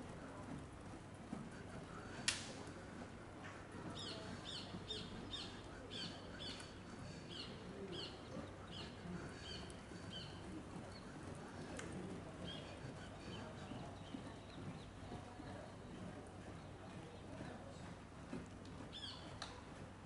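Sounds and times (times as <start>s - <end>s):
low background noise: 0.0s - 20.0s.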